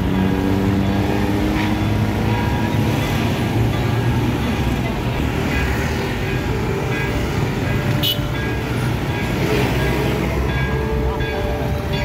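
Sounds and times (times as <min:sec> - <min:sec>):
traffic engines rumbling: 0:00.0 - 0:12.0.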